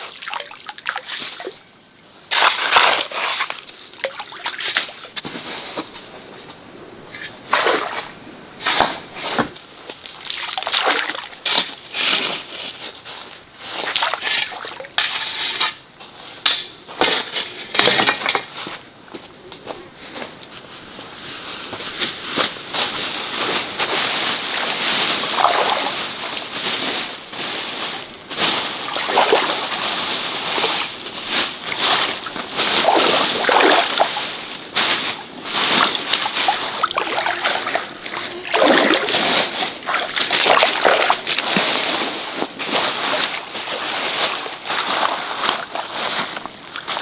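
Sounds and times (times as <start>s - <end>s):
water splashing in a stream: 0.0s - 1.6s, 2.3s - 5.1s, 7.4s - 8.2s, 10.1s - 11.7s, 13.8s - 15.0s, 24.6s - 26.6s, 28.6s - 42.0s.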